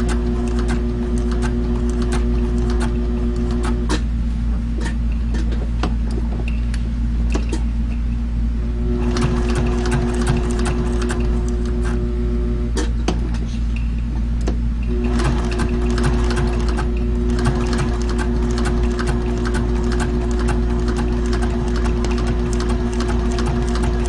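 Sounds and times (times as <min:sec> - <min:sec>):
sewing machine motor hum: 0:00.0 - 0:04.0, 0:08.8 - 0:12.3, 0:14.9 - 0:24.0
sewing machine stitching: 0:00.0 - 0:04.0, 0:08.9 - 0:12.0, 0:14.9 - 0:24.0.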